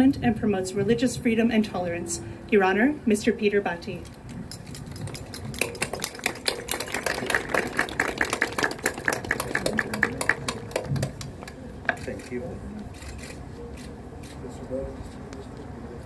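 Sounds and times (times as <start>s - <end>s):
audience clapping: 4.9s - 11.6s.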